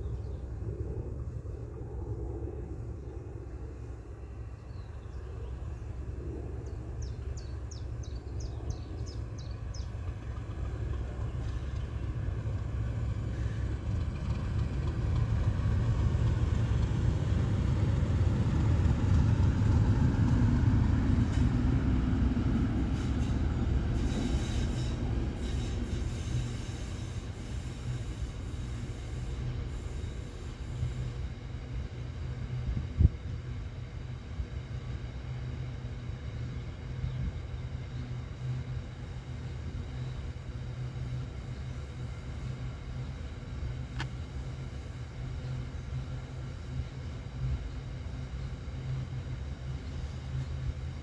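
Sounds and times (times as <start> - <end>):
diesel locomotive rumbling past: 0.0 - 51.0
train wagons rolling: 9.5 - 28.8.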